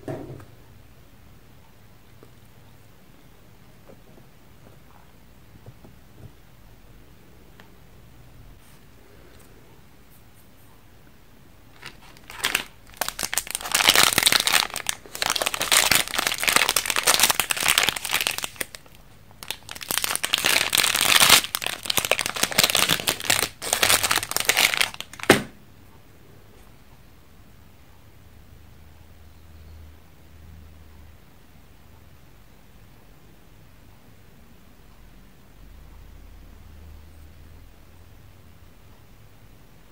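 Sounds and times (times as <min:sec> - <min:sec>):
foil wrapper crinkling: 0:11.7 - 0:25.5.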